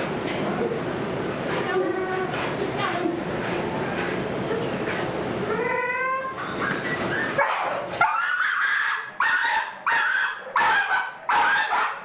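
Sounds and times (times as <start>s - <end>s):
dog barking sharply: 9.2s - 12.0s.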